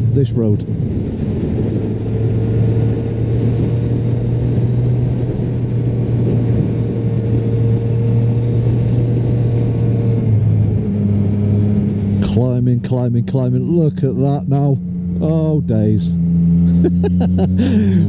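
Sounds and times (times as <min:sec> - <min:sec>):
wind noise on microphone: 0:00.0 - 0:12.3
motorcycle engine running: 0:00.0 - 0:18.0.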